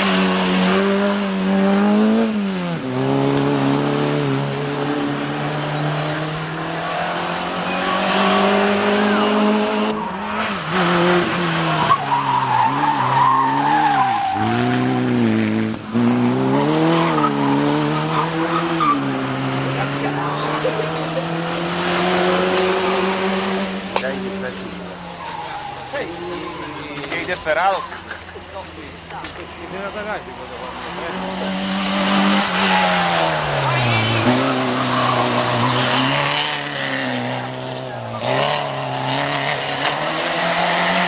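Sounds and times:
race car engines revving: 0:00.0 - 0:41.0.

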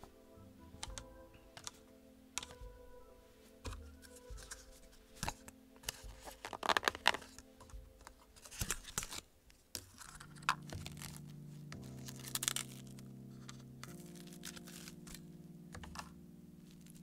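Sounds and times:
quiet background music: 0:00.0 - 0:17.0
clicks and crackles: 0:05.2 - 0:17.0.

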